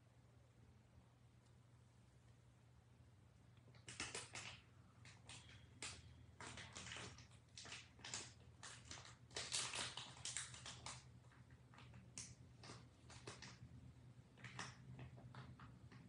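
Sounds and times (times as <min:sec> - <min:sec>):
low steady hum: 0:00.0 - 0:16.0
faint rustling and clicking: 0:03.5 - 0:16.0.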